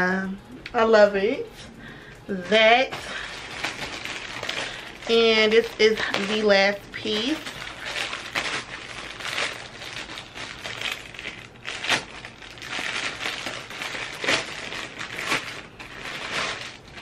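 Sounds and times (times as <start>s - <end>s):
plastic mailer bag crinkling: 2.3s - 17.0s.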